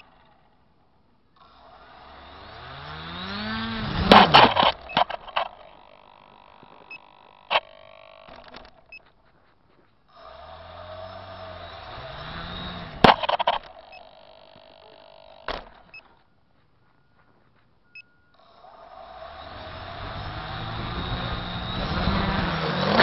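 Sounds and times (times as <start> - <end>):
drone motors whining: 0.0 - 23.0
sharp clicks: 3.9 - 9.4, 12.3 - 16.2.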